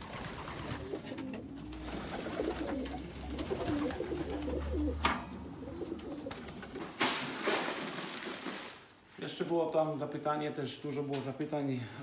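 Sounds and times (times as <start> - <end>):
pigeons cooing: 0.0 - 7.0.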